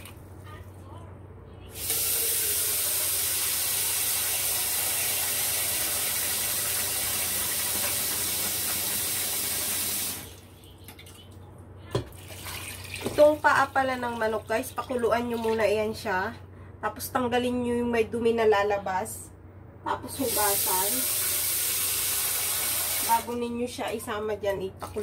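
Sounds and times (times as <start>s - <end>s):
kitchen tap running into bowl: 1.8s - 11.2s, 12.0s - 15.7s, 20.2s - 23.4s.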